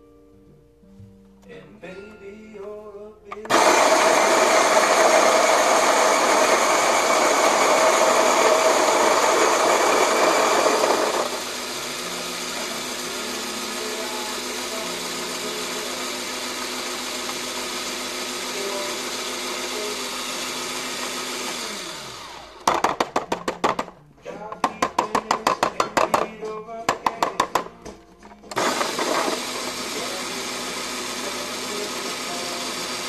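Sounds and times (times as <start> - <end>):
electric coffee grinder grinding: 3.5 - 23.0, 28.5 - 33.0.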